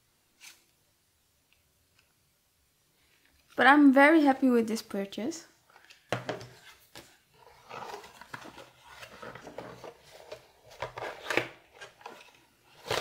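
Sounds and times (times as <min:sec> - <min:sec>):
hands rustling a cardboard box: 0:06.3 - 0:13.0.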